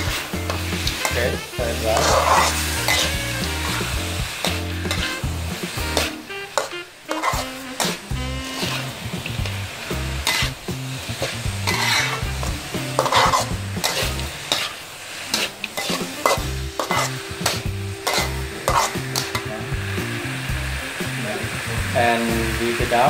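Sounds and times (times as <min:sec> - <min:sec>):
metal spatula scraping wok: 0:00.0 - 0:21.2
frying sizzle: 0:00.0 - 0:23.0.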